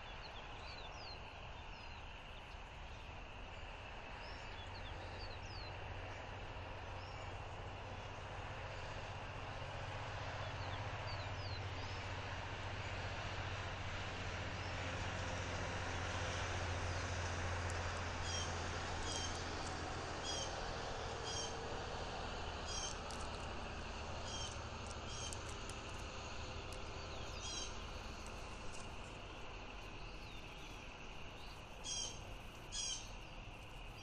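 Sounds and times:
distant low engine drone: 0:00.0 - 0:34.0
small birds chirping: 0:16.9 - 0:21.7, 0:22.6 - 0:34.0.

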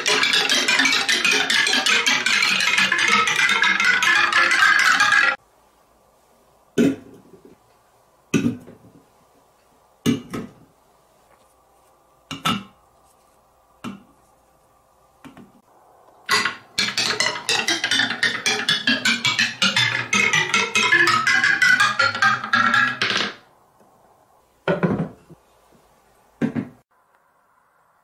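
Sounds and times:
marbles clattering down marble run: 0:00.0 - 0:05.4, 0:16.3 - 0:23.4
wooden blocks clacking on table: 0:00.0 - 0:05.4, 0:16.3 - 0:23.4.

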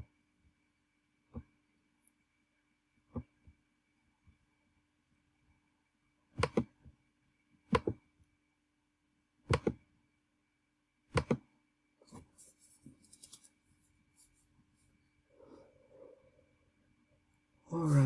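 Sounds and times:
mouse and keyboard clicks: 0:06.4 - 0:06.7, 0:09.5 - 0:09.8, 0:11.1 - 0:11.4.

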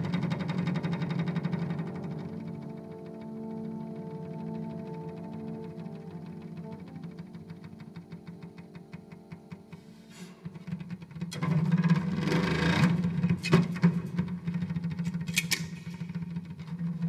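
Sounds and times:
low drone: 0:00.0 - 0:13.2
experimental horn and percussion music: 0:00.3 - 0:16.2.

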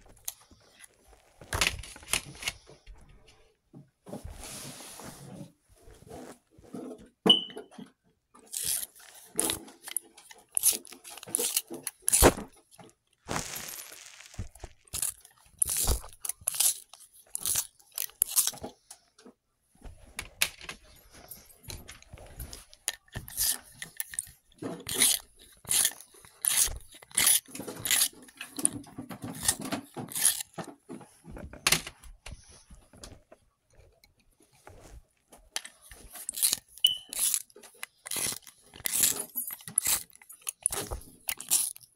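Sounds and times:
pencil sharpener scraping: 0:08.4 - 0:12.5, 0:13.3 - 0:18.7, 0:22.3 - 0:30.7, 0:35.6 - 0:41.9
pencil sharpener clicks and crunches: 0:08.4 - 0:18.8, 0:22.5 - 0:30.7, 0:35.6 - 0:41.9.

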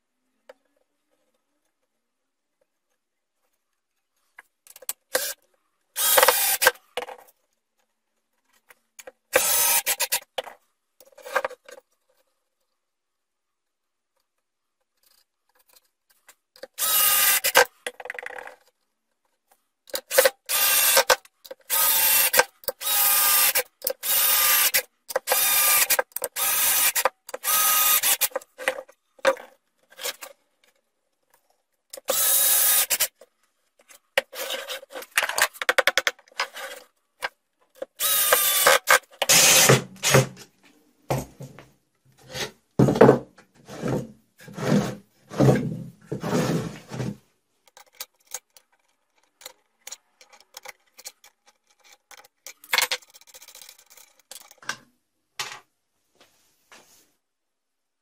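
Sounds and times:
cordless drill driving screws: 0:06.0 - 0:06.8, 0:09.4 - 0:10.2, 0:16.8 - 0:17.7, 0:20.1 - 0:28.3, 0:32.1 - 0:33.1, 0:38.0 - 0:40.3.

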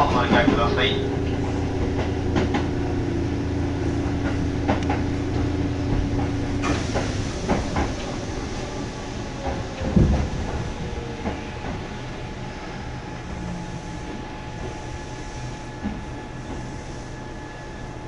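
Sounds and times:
wheels clacking over rail joints: 0:00.0 - 0:02.8, 0:04.0 - 0:08.2
train hum and rumble: 0:00.0 - 0:18.0
hiss: 0:06.6 - 0:09.2.

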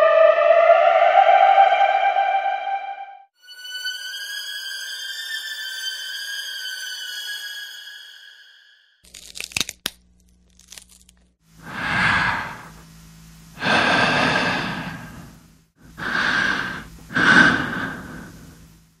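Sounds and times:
sharp crackles: 0:09.0 - 0:11.4
low steady hum: 0:09.1 - 0:19.0
long hissing swells: 0:11.6 - 0:12.9, 0:13.5 - 0:18.8.

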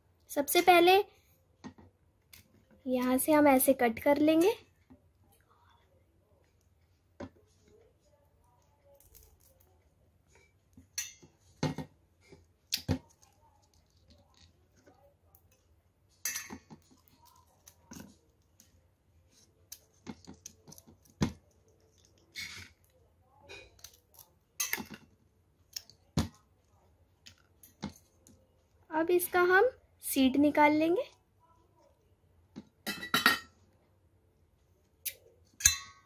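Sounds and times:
fruit skin crackling as peeled: 0:08.8 - 0:09.8, 0:23.8 - 0:24.6.

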